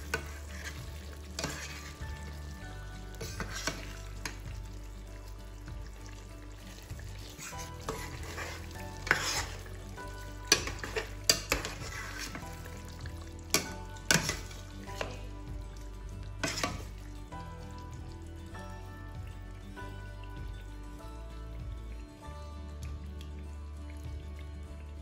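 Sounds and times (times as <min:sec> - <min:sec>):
spoon stirring in a pot: 0:00.0 - 0:18.0
sauce bubbling and sizzling: 0:00.0 - 0:25.0.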